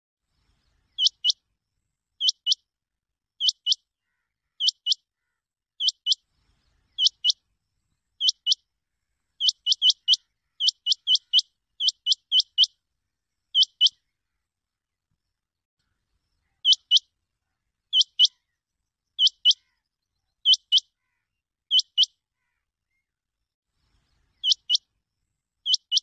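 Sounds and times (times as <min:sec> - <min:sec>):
quail calling: 0:00.9 - 0:01.4, 0:02.2 - 0:02.6, 0:03.4 - 0:06.2, 0:06.9 - 0:07.4, 0:08.2 - 0:08.6, 0:09.4 - 0:12.7, 0:13.6 - 0:14.0, 0:16.5 - 0:17.0, 0:17.9 - 0:18.4, 0:19.2 - 0:19.8, 0:20.4 - 0:22.6, 0:24.4 - 0:24.8, 0:25.7 - 0:26.0.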